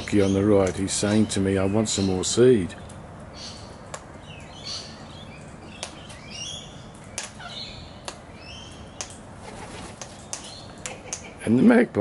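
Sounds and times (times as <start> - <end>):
soft high bird chirps: 0.0 - 9.2
cockatoo beak clicks: 10.0 - 11.4.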